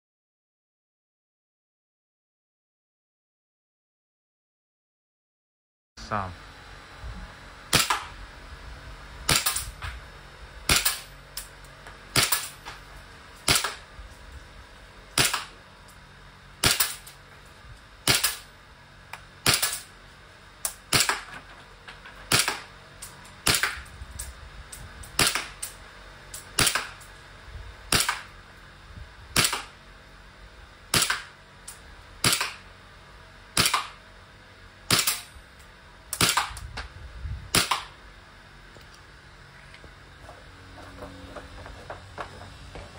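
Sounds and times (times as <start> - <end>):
airsoft pistol shots: 7.7 - 8.1, 9.3 - 9.7, 10.7 - 11.1, 12.1 - 12.6, 13.4 - 13.9, 15.2 - 15.6, 16.6 - 17.1, 18.0 - 18.5, 19.4 - 19.9, 20.7 - 21.3, 22.3 - 22.7, 23.4 - 23.9, 25.2 - 25.7, 26.6 - 27.0, 27.9 - 28.3, 29.4 - 29.8, 30.9 - 31.4, 32.2 - 32.7, 33.6 - 34.0, 34.9 - 35.3, 36.2 - 36.6, 37.5 - 38.0.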